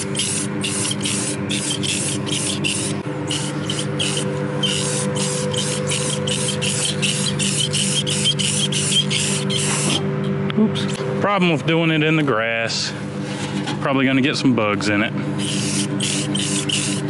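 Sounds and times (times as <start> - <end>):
aerosol spray can hissing: 0.0 - 10.0, 15.4 - 17.0.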